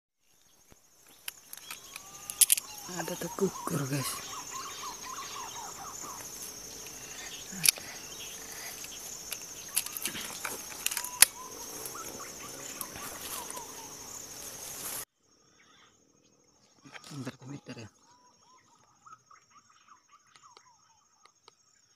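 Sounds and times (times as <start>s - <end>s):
bird chirps: 0.2s - 21.9s
insects buzzing: 0.2s - 21.9s
sharp clicks or knocks: 1.3s - 2.6s.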